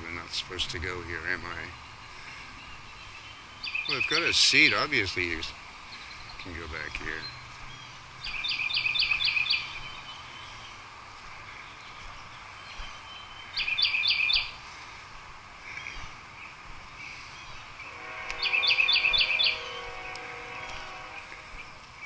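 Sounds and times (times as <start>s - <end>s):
faint steady droning tone: 14.4s - 22.0s
songbird whistled notes: 17.8s - 21.7s.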